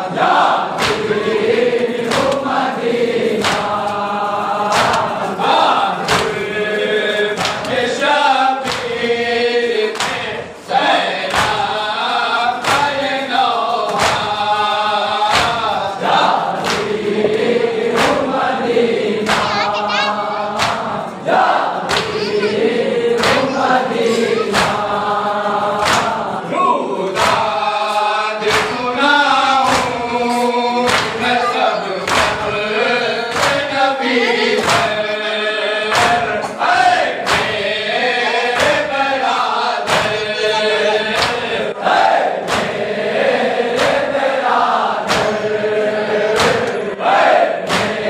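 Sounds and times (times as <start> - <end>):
men singing a lament: 0.0 - 48.0.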